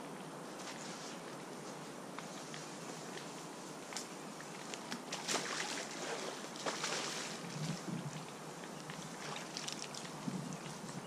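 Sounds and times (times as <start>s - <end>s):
light crackles: 0.5s - 5.8s
water splashing and sloshing: 4.4s - 10.8s.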